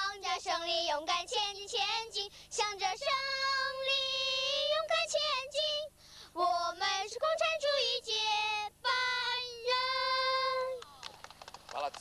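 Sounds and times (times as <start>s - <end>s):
girl singing unaccompanied: 0.0s - 10.8s.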